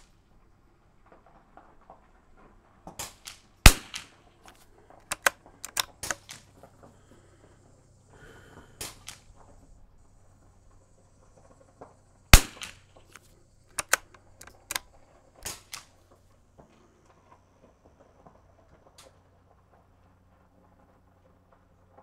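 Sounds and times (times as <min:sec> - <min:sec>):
rifle shot: 0:02.9 - 0:06.6, 0:08.7 - 0:09.5, 0:12.3 - 0:16.0
rifle bolt clicks: 0:03.2 - 0:06.5, 0:12.4 - 0:15.9.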